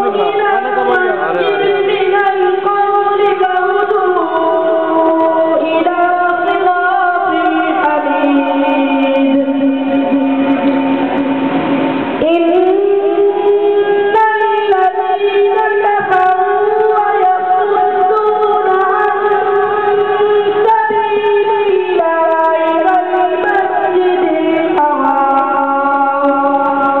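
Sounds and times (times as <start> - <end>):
boy chanting: 0.0 - 9.7.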